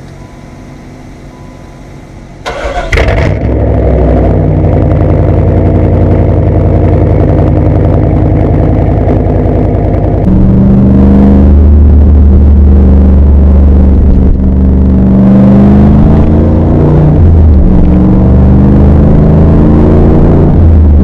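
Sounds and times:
car engine idling loudly: 0:00.8 - 0:18.4
engine starting with loud flare: 0:02.4 - 0:03.8
car engine cranking: 0:02.4 - 0:04.0.

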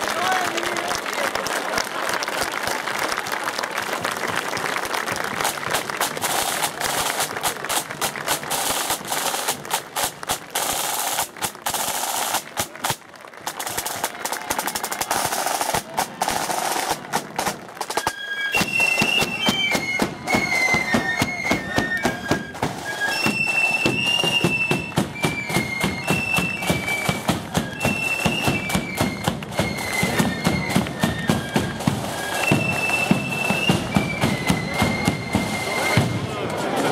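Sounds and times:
snare drums: 0:05.3 - 0:36.9
high flute melody: 0:17.8 - 0:36.4.

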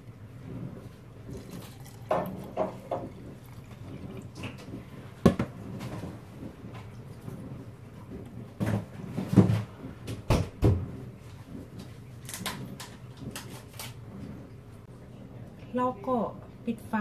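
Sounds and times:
water pouring into glass jar: 0:00.0 - 0:05.2.

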